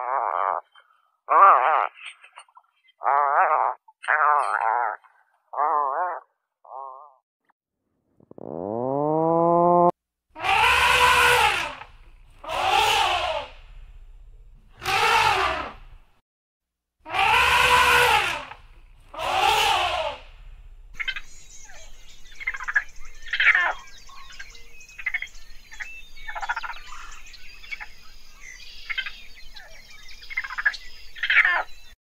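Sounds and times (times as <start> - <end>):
harsh bleats: 10.4 - 13.8, 17.1 - 20.5
small birds chirping: 11.5 - 16.0, 18.5 - 32.0.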